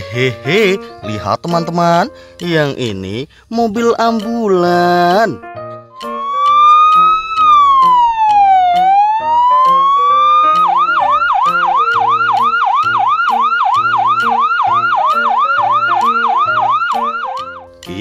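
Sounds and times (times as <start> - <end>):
background music with steady beat: 0.0 - 18.0
electronic ambulance siren: 6.0 - 17.7.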